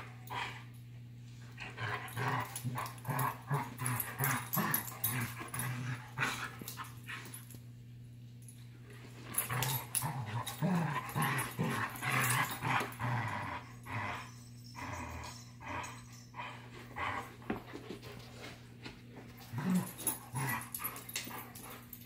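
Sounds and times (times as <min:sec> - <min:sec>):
dogs play growling: 0:00.0 - 0:07.6, 0:08.8 - 0:22.0
dogs scuffling and knocking: 0:17.2 - 0:22.0.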